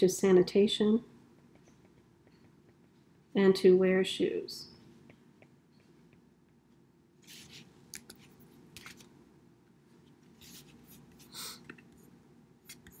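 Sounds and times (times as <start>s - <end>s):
stylus tapping and scraping on screen: 1.3s - 3.2s, 4.8s - 9.2s, 9.9s - 13.0s.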